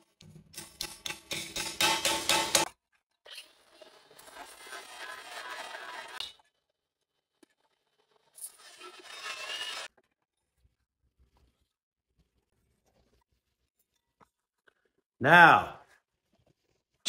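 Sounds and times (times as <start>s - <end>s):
metal scraping and grating: 4.0s - 6.4s, 7.9s - 9.9s.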